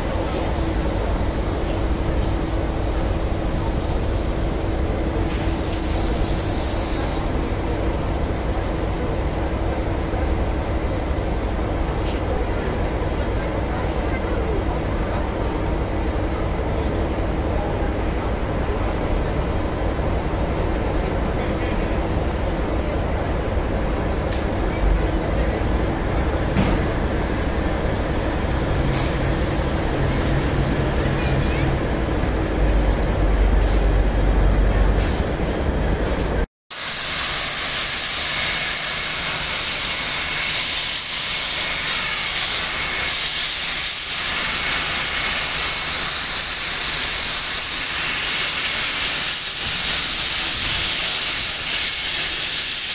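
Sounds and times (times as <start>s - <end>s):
steam locomotive hiss: 0.0s - 10.0s, 36.7s - 52.9s
locomotive rumbling: 0.0s - 36.5s.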